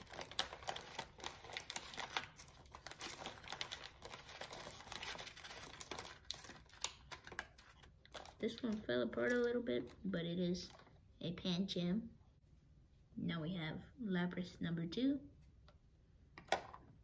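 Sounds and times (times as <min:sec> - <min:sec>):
plastic packaging crinkling: 0:00.0 - 0:10.9.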